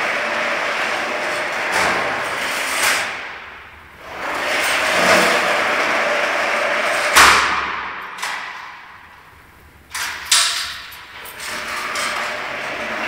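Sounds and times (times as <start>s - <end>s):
steel gate rolling and scraping: 0.0s - 7.2s, 9.9s - 13.0s
loud metal clang: 7.1s - 9.3s.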